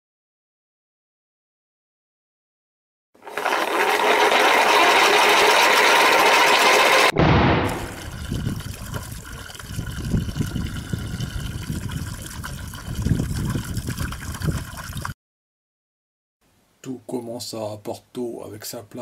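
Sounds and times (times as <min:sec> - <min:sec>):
wind gusting across microphone: 0:07.6 - 0:15.1
faint steady hiss: 0:16.4 - 0:19.0.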